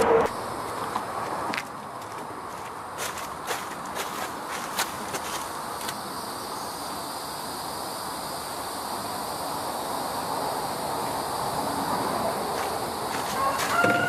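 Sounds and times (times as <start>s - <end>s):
insects droning: 0.3s - 14.0s
footsteps: 0.9s - 6.0s, 12.5s - 14.0s.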